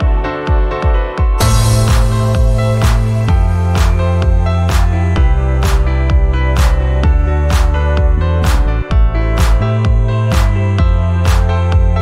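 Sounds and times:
electronic music with heavy bass: 1.4s - 12.0s.

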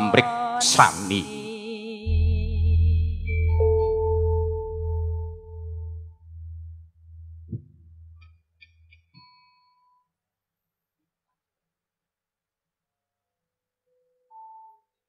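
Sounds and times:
faint high tones: 2.1s - 7.5s
ringing bronze note: 2.1s - 7.5s
gong low wavering hum: 2.1s - 8.2s.

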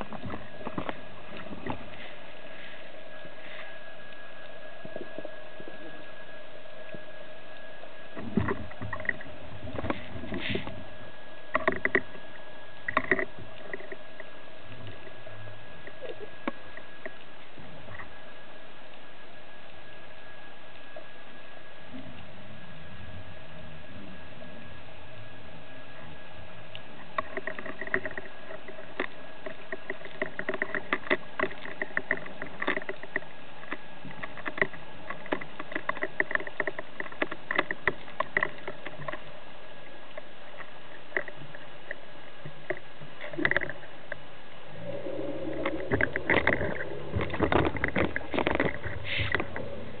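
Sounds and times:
steady low hum: 0.0s - 50.0s
underwater clicks and crackles: 0.0s - 50.0s
bubbling and splashing: 44.6s - 50.0s.

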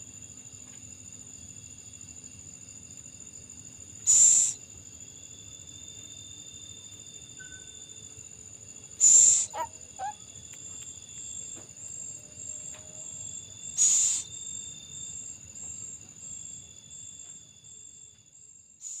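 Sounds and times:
crickets trilling: 0.0s - 19.0s
loud short hissing bursts: 4.1s - 4.6s.

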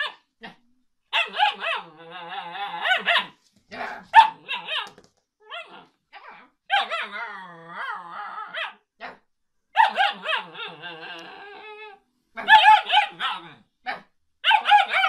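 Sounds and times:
puppy howling: 9.8s - 13.5s.

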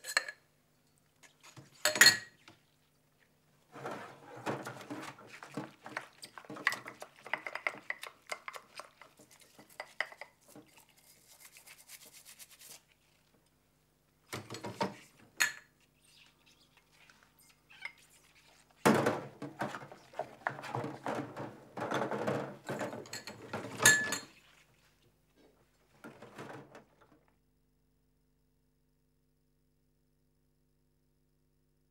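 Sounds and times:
hard objects clattering and clinking: 18.9s - 24.3s.

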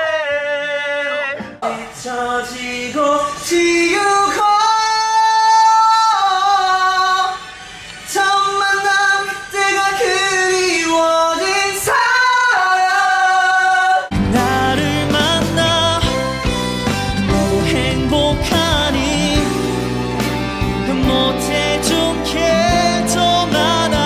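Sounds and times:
man singing unaccompanied: 0.0s - 7.4s, 8.1s - 16.6s, 17.3s - 19.8s, 20.8s - 24.0s
band playing with bass: 14.1s - 24.0s.

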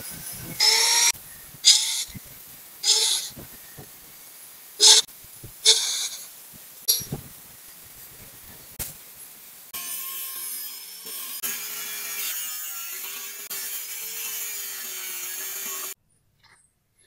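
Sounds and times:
angle grinder cutting steel: 9.7s - 16.0s.

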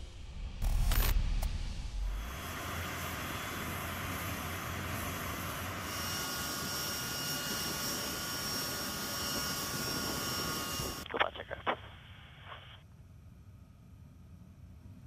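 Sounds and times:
jet engines rushing: 0.0s - 11.4s
high turbine whine: 0.0s - 15.0s.

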